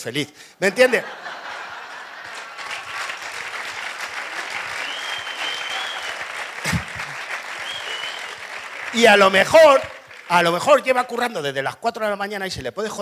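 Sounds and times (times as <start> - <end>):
audience applauding: 1.2 - 10.9.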